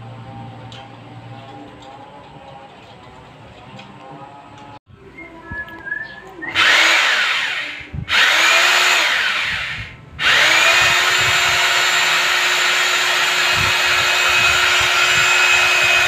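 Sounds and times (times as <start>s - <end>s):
electric drill whining: 6.5s - 16.0s.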